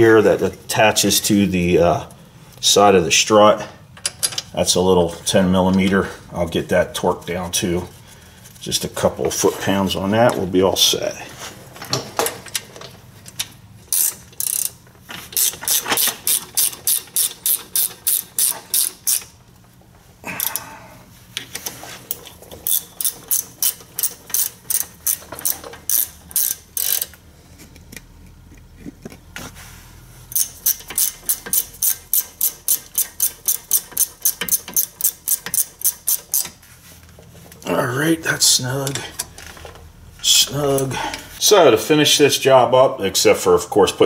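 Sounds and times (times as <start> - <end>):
ratchet wrench clicking: 13.9 - 14.8, 15.4 - 19.4, 22.1 - 27.2, 30.3 - 36.5.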